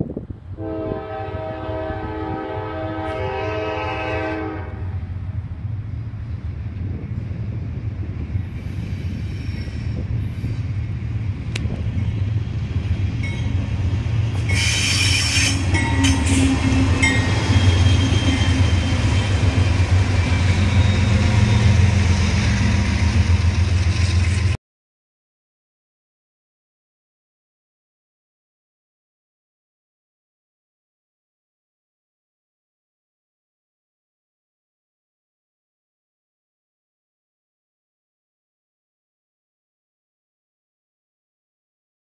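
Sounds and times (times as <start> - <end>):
locomotive engine rumble: 4.1 - 24.6
train wheels squealing on rails: 8.3 - 10.9, 13.1 - 24.6.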